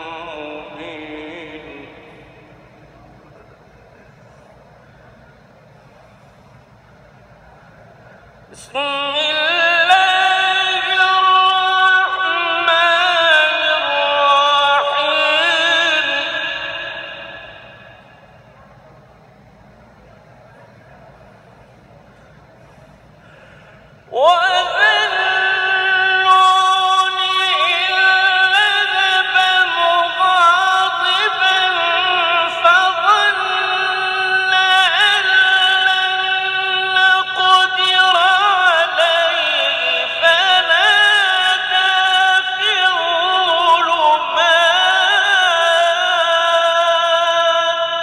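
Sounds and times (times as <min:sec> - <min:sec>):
man chanting melismatic recitation: 0:00.0 - 0:04.2, 0:08.5 - 0:18.6, 0:23.9 - 0:48.0.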